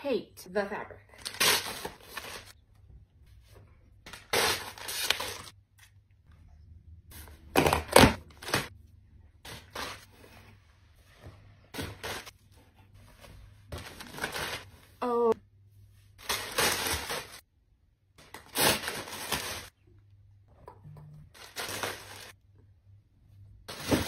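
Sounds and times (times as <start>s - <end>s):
plastic bags crinkling and tearing: 18.2s - 19.7s, 21.4s - 22.4s.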